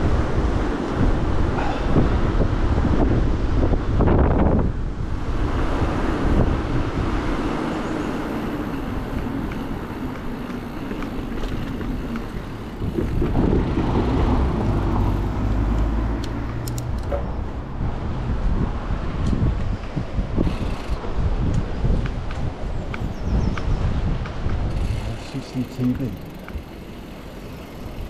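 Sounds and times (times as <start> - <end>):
bicycle tyres on tarmac: 0.0 - 28.0
wind buffeting microphone: 0.0 - 28.0
deep rumble: 11.4 - 20.4.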